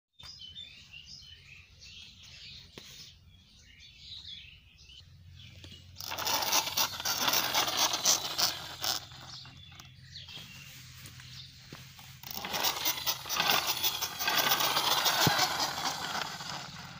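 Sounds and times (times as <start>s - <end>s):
small birds chirping: 0.2s - 16.9s
camera scuffing across dirt: 10.0s - 12.2s.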